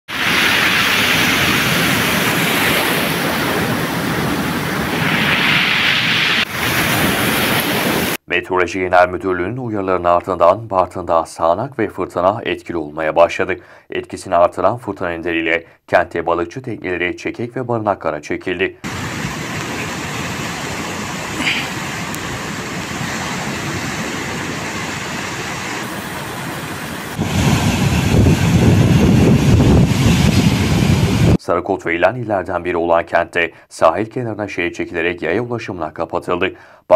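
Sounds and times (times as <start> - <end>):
surf hissing: 0.1 - 8.2, 18.8 - 31.4
waves crashing on shore: 0.1 - 8.2, 18.8 - 31.4
wind buffeting microphone: 18.9 - 31.4.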